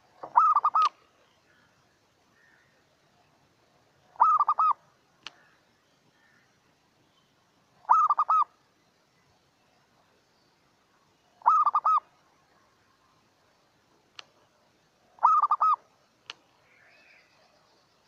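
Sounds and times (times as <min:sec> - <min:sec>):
dove cooing: 0:00.0 - 0:01.0, 0:04.2 - 0:04.8, 0:07.8 - 0:08.5, 0:11.4 - 0:12.1, 0:15.2 - 0:15.8
faint click: 0:05.2 - 0:05.5, 0:14.1 - 0:14.4, 0:16.2 - 0:16.5.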